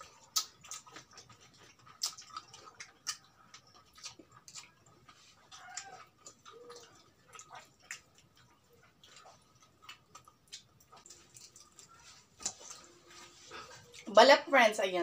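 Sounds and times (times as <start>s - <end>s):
crispy chicken crackling: 0.0s - 14.1s
chewing: 0.0s - 14.2s.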